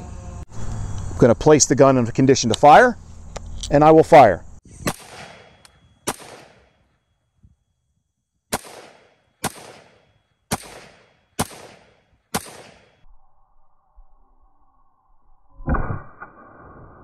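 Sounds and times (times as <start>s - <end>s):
gunshot echo: 4.8s - 6.8s, 8.5s - 13.0s, 15.6s - 17.0s
rifle shots: 4.8s - 6.8s, 8.5s - 13.0s.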